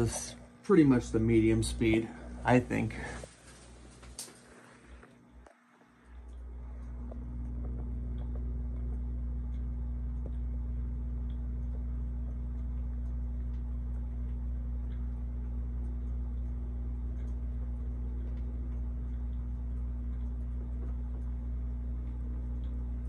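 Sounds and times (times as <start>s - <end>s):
ceiling fan motor hum: 0.0s - 23.0s
faint ticks: 5.0s - 23.0s.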